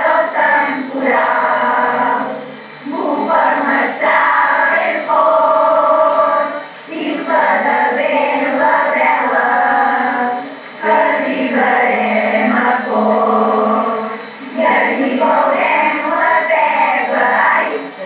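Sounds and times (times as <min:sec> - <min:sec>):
group of voices singing: 0:00.0 - 0:18.0.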